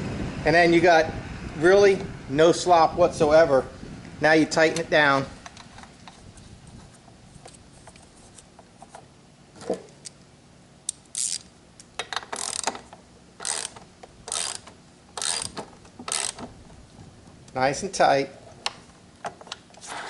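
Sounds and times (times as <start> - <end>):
socket ratchet clicking: 10.9 - 16.5.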